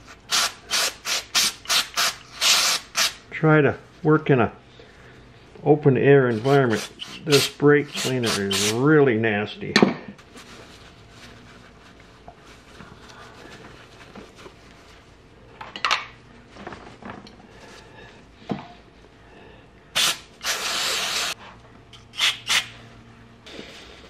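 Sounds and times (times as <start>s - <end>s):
paper towel rustling: 10.2s - 15.3s.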